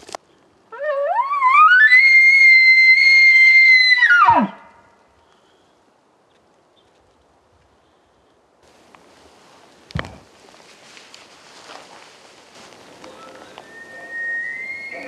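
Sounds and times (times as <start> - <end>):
elk bugling: 0.7 - 4.7, 12.7 - 15.0.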